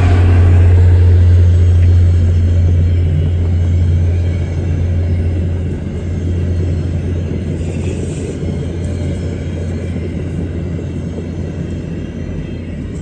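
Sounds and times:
train wheels rumbling on rail: 0:00.0 - 0:13.0
thin high whine: 0:06.1 - 0:13.0.

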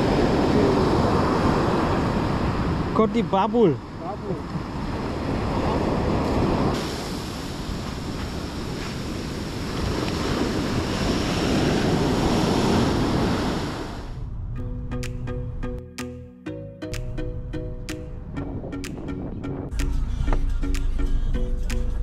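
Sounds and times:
wind on microphone: 0:00.0 - 0:03.0, 0:04.4 - 0:14.6, 0:18.1 - 0:19.8
ocean surf washing on shore: 0:00.0 - 0:14.2.

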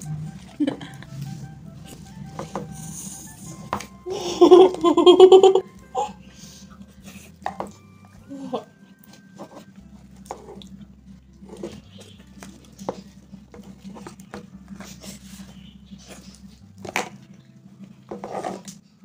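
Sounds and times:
spoons scraping plastic tubs: 0:00.0 - 0:04.9, 0:09.0 - 0:18.9.

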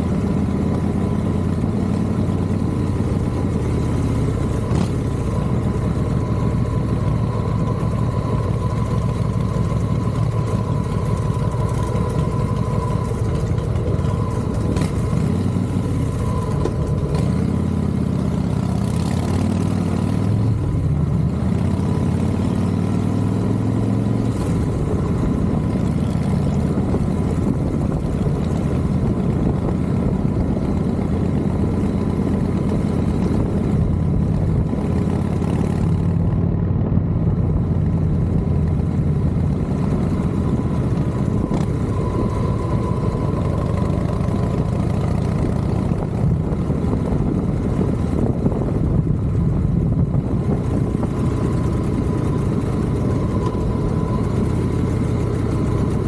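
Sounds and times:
motorcycle engine running: 0:00.0 - 0:56.0
wind noise: 0:24.0 - 0:56.0.

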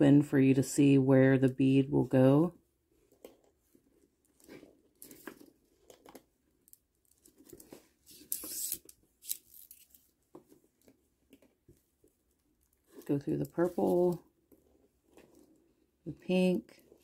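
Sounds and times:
string rasping through beads: 0:02.9 - 0:17.0
plastic beads clicking and rattling: 0:05.0 - 0:10.1.

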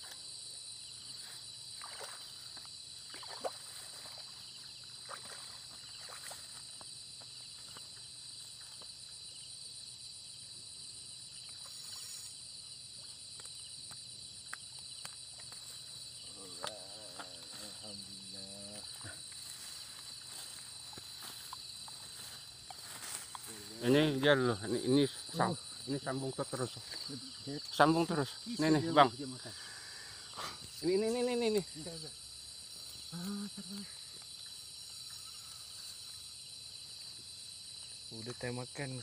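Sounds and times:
high-pitched insect trilling: 0:00.0 - 0:39.0
rustles through wet grass: 0:01.0 - 0:09.1, 0:14.9 - 0:37.4.

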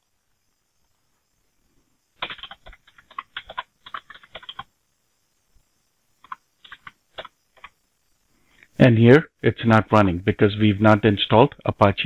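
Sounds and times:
typing on computer keyboard: 0:02.2 - 0:04.7, 0:06.2 - 0:07.8.

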